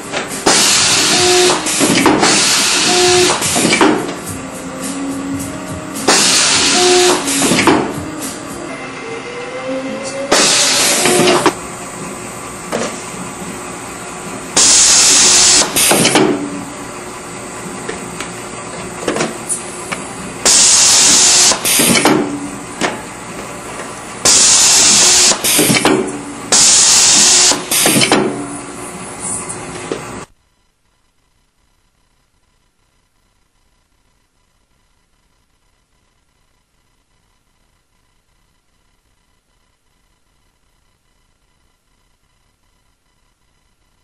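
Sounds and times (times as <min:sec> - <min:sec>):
machine hum: 0:00.0 - 0:44.0
compressed air hiss: 0:00.4 - 0:03.8, 0:06.0 - 0:08.5, 0:10.1 - 0:11.5, 0:14.6 - 0:16.1, 0:20.4 - 0:22.0, 0:24.2 - 0:25.8, 0:26.5 - 0:28.0.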